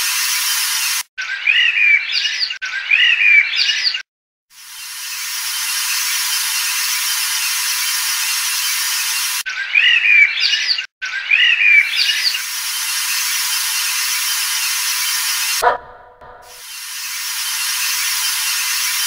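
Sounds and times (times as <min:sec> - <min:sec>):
birds chirping: 0:15.6 - 0:16.5.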